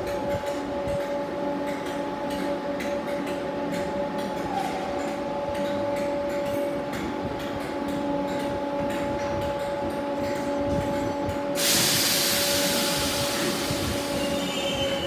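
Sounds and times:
train equipment hum: 0.0s - 15.0s
loud air hiss: 11.6s - 15.0s.

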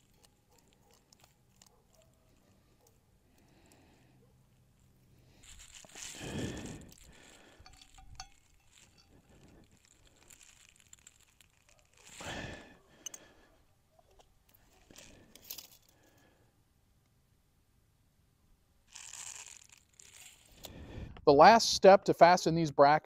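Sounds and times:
rustling handling noise: 0.0s - 3.5s, 4.2s - 16.2s, 18.9s - 20.7s.

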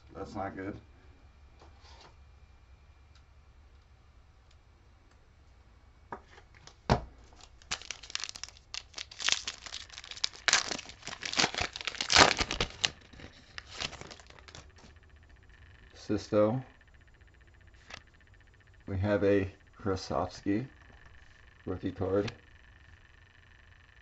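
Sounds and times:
foil wrapper crinkling: 7.3s - 14.9s
foil wrapper tearing: 7.4s - 14.9s.

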